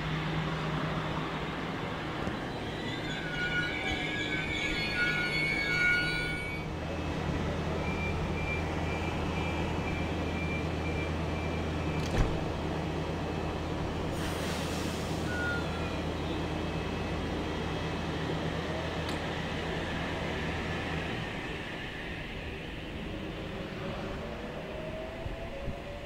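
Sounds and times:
train doors closing thud: 11.9s - 12.6s.

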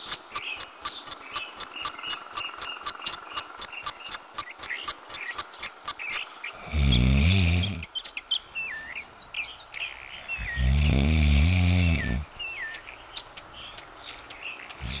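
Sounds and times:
person snoring: 6.6s - 7.9s, 10.4s - 12.2s.

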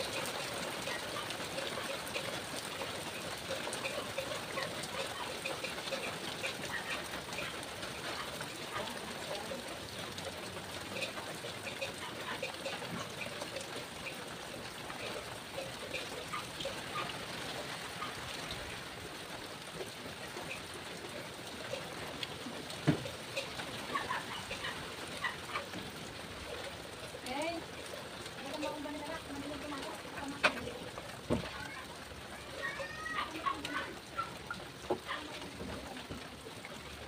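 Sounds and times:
water drips: 0.0s - 37.0s
water trickling and pattering: 0.0s - 37.0s.

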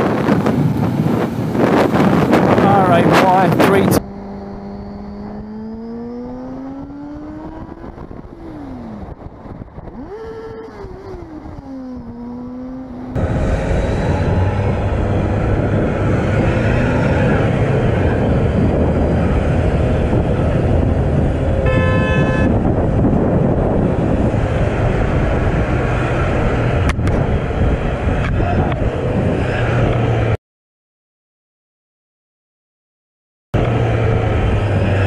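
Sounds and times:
motorcycle engine in traffic: 0.0s - 30.4s, 33.6s - 35.0s
wind noise: 0.0s - 30.4s
vehicle horn blast: 21.6s - 22.6s.

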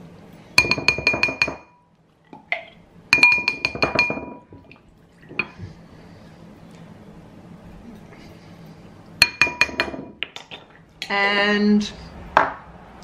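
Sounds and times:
spoon tapping ceramic bowl: 0.6s - 1.8s, 3.2s - 4.4s, 9.2s - 10.2s.

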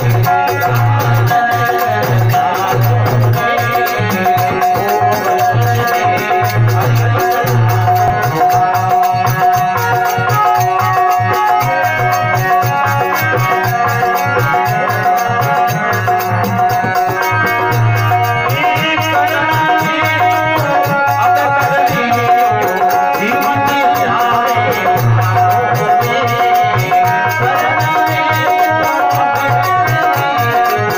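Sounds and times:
harmonium melody: 0.0s - 30.9s
jingling hand percussion: 0.0s - 30.9s.

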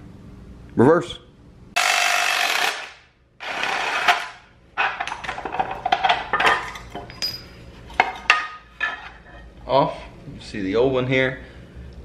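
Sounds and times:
impact driver running: 1.8s - 4.4s
metallic clinks and clatters: 5.0s - 8.4s.

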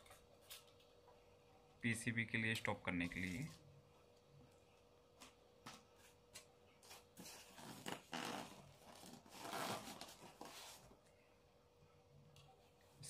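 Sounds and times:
packaging rustling and scraping: 6.0s - 11.0s.

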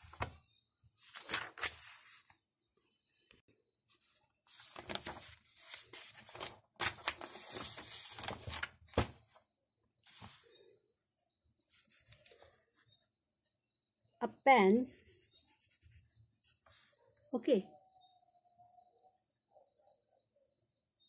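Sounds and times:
paper rustling and scraping: 0.0s - 0.3s, 1.0s - 2.3s, 4.5s - 9.2s, 10.1s - 10.5s.

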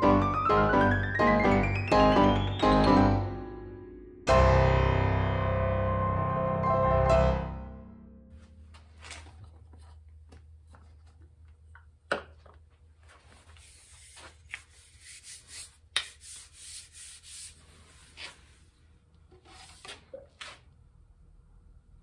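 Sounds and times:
wooden handle scraping in plastic tube: 19.3s - 20.6s.

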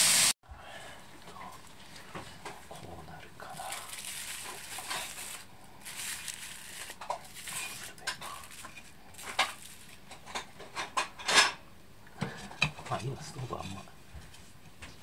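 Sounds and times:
fire hissing: 0.0s - 0.4s.

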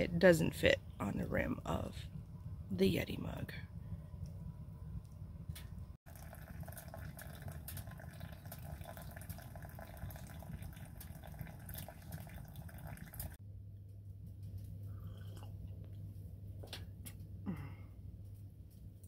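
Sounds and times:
water stream pouring from tap: 6.1s - 13.4s.

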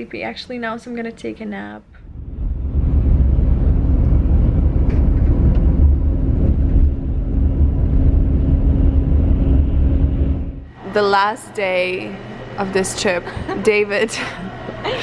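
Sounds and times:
coach engine and tyres rumbling: 2.1s - 10.7s.

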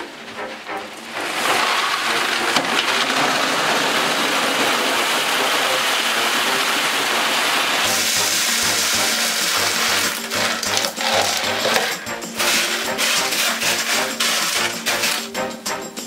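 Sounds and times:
background music: 0.0s - 16.0s
clay pebbles pouring into plastic tub: 1.2s - 15.5s
pebbles clattering together: 7.8s - 15.4s.

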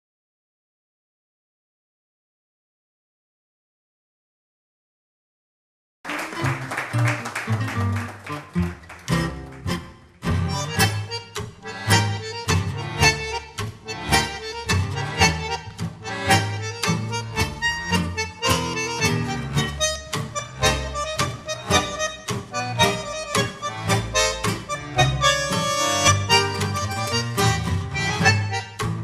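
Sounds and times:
tango trio playing: 6.1s - 29.0s.

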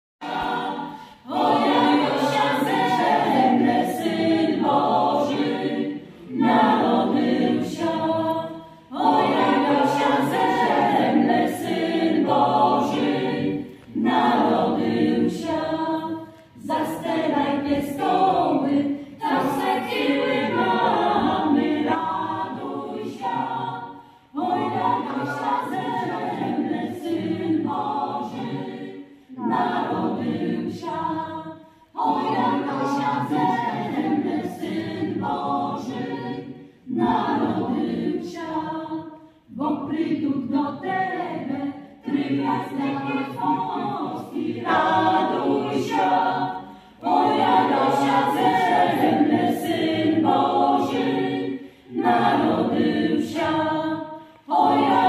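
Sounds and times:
choir singing a cappella: 0.2s - 55.0s
singers breathing: 0.9s - 1.3s, 24.0s - 24.4s, 46.6s - 47.0s, 51.6s - 51.9s.

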